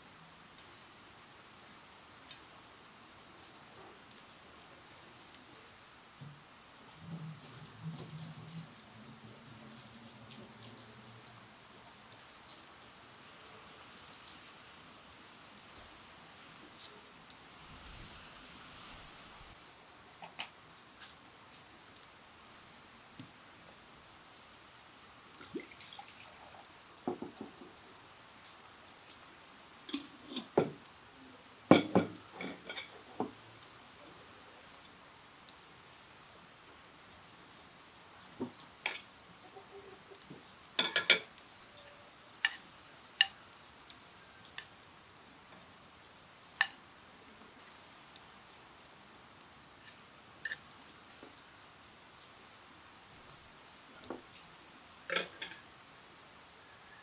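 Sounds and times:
cutlery clinking on clay dishes: 0:40.8 - 0:41.3.

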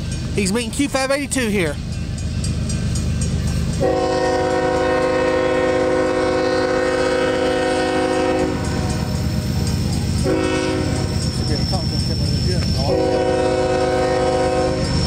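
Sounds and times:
low rumble of train: 0:00.0 - 0:15.0
locomotive air horn blasts: 0:03.8 - 0:09.1, 0:10.2 - 0:11.2, 0:12.8 - 0:15.0.

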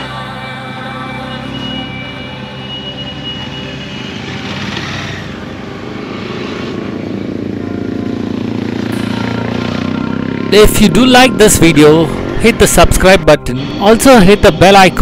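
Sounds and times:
motorcycle engines idling: 0:01.4 - 0:12.5
motorcycles passing by: 0:03.5 - 0:15.0.

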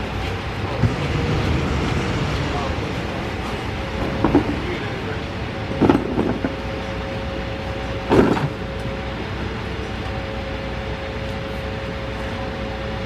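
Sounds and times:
garbage truck whining: 0:00.0 - 0:13.0
wheelie bins knocking: 0:00.7 - 0:06.8.

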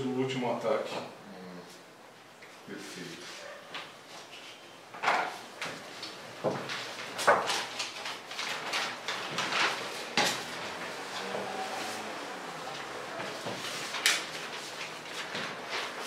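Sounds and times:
paper rustling and sliding: 0:05.8 - 0:16.0.

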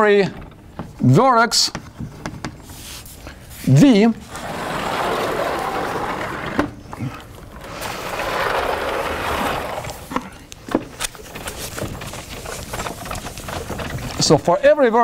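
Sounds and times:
chalkboard panels sliding: 0:00.0 - 0:14.6.

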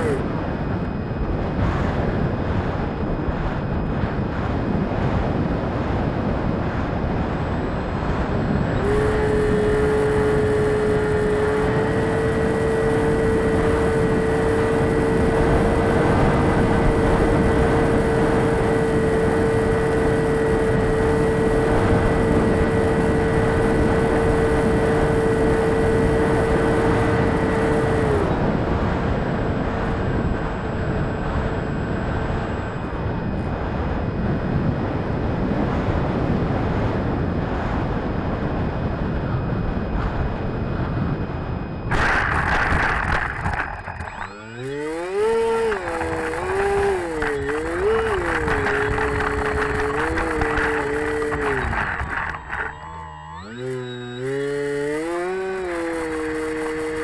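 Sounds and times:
model airplane motor whine: 0:00.0 - 0:57.0
wind rushing over microphone: 0:00.0 - 0:57.0.

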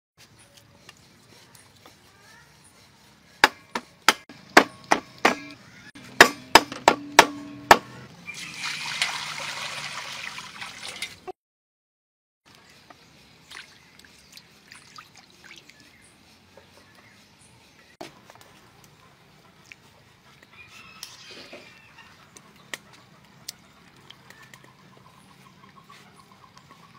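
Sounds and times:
sharp ringing knocks: 0:06.2 - 0:08.0
water poured into a wok: 0:08.3 - 0:11.3.

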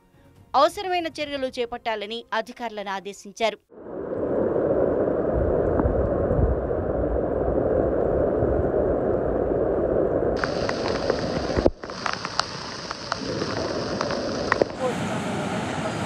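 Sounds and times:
raindrop hits: 0:10.4 - 0:14.9
heavy rain hissing: 0:10.4 - 0:16.0.

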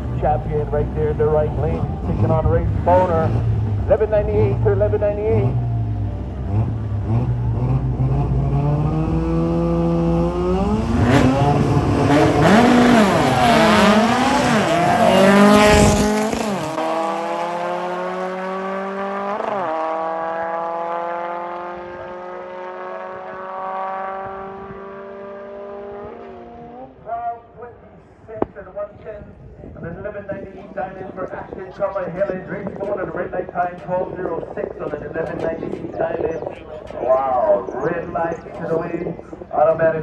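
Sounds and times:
drag cars accelerating: 0:00.0 - 0:27.1.

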